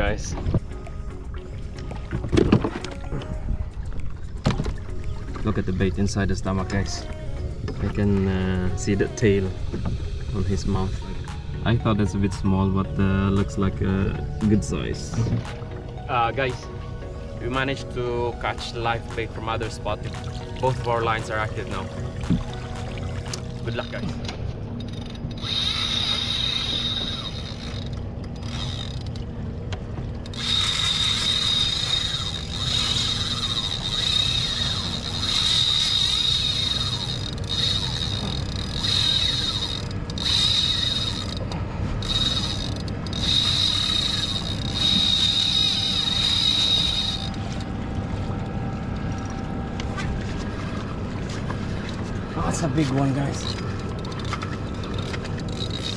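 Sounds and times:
fishing reel drag buzzing: 24.8 - 29.3, 30.2 - 47.7, 53.2 - 55.9.

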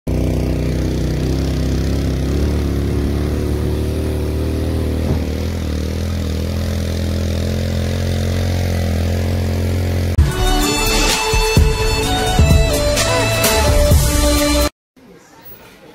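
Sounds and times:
vehicle engine running steadily: 0.1 - 10.8
music: 10.2 - 14.7.

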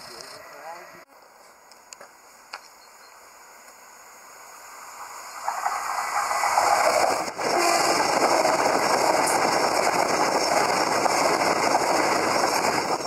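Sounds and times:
passenger train passing at speed: 3.4 - 13.0.

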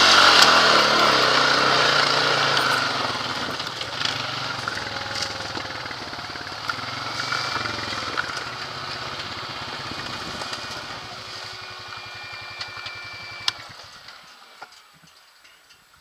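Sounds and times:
engine idling: 0.0 - 15.2
engine switch click: 12.6 - 13.8.

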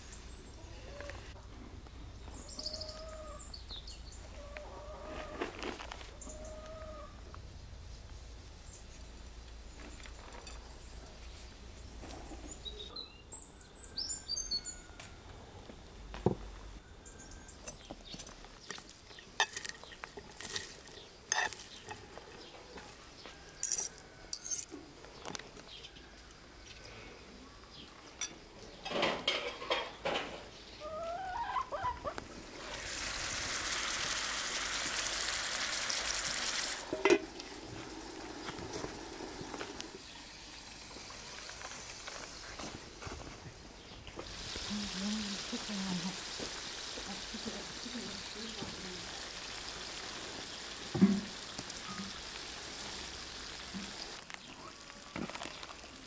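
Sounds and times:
bird chirping: 2.0 - 4.6, 9.6 - 15.0, 16.8 - 20.1
spoons clinking in glass bowl: 19.4 - 22.0, 23.6 - 24.7
steady hiss: 32.2 - 56.0.

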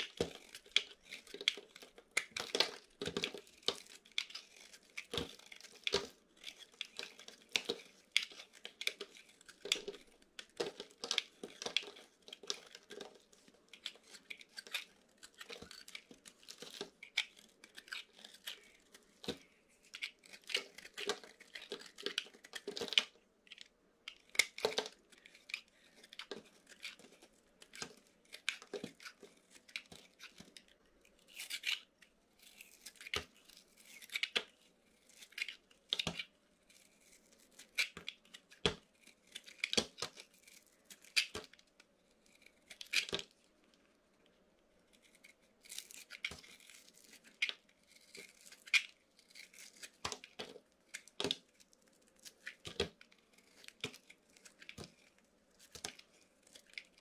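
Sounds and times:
knife blade scraping soap: 0.0 - 13.1, 13.7 - 30.7, 31.3 - 34.5.

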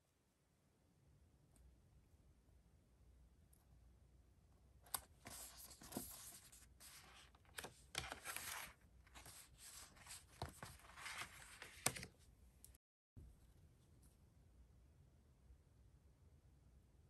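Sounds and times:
paper envelopes rustling: 5.0 - 12.1.

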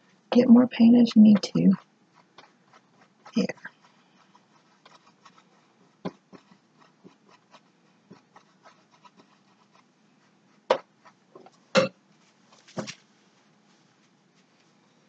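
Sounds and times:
paintbrush scratching on canvas: 0.8 - 11.4.

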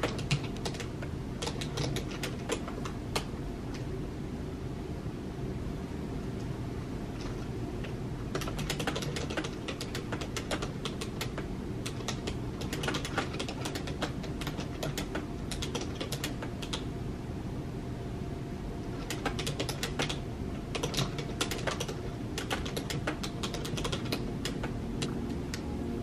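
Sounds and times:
typing on computer keyboard: 0.0 - 3.3, 8.3 - 16.9, 18.9 - 25.2
steady low hum: 0.0 - 26.0.

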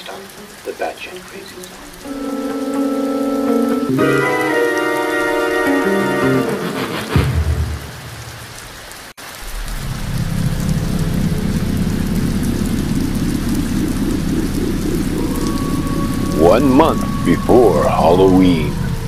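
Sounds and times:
heavy rain: 0.0 - 19.0
low rumble of thunder: 9.4 - 19.0.

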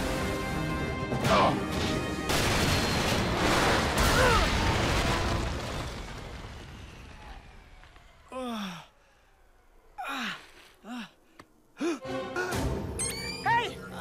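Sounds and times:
cartoon explosion blast and rumble: 2.3 - 7.7
boy groaning: 10.0 - 11.2.

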